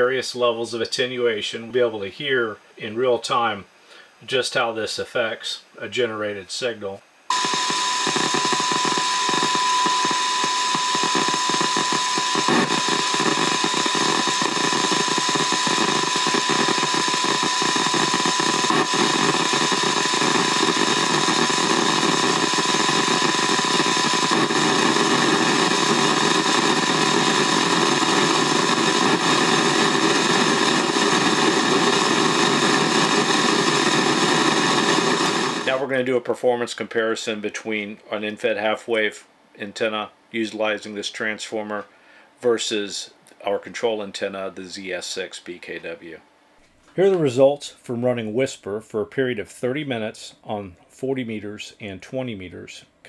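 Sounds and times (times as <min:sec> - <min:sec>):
radio static hiss: 0:00.0 - 0:38.0
steady test tone: 0:07.3 - 0:35.9.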